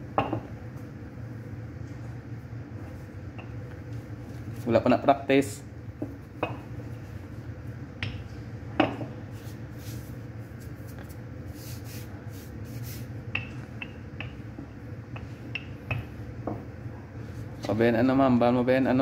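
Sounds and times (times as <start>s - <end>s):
rolling pin rubbing on dough: 9.3s - 13.2s.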